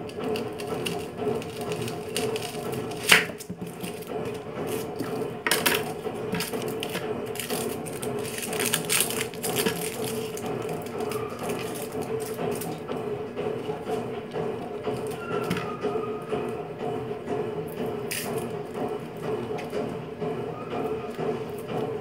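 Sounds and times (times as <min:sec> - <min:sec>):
knife cutting an onion: 0:00.4 - 0:05.2.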